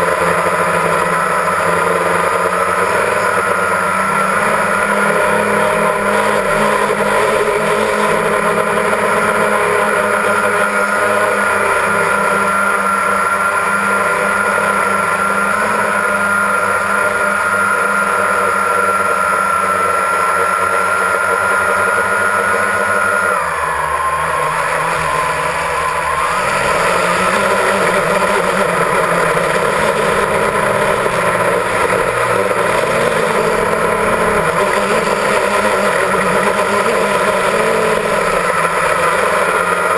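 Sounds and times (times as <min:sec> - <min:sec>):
drone motors whining: 0:00.0 - 0:39.9.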